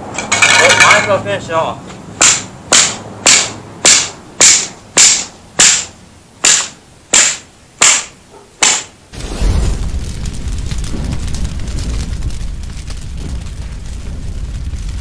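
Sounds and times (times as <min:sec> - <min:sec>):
low rumbling noise: 0:09.1 - 0:15.0.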